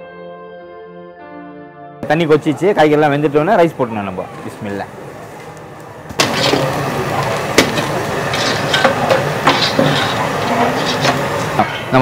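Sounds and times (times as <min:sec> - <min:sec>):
boiling water sloshing: 0:06.1 - 0:11.6
ladle clanking against pot: 0:07.6 - 0:11.5.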